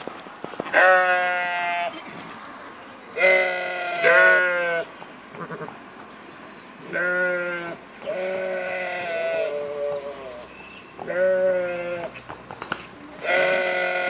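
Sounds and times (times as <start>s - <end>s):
sheep bleating: 0.7s - 2.0s, 3.2s - 5.8s, 6.9s - 10.4s, 11.0s - 12.1s, 13.2s - 14.0s.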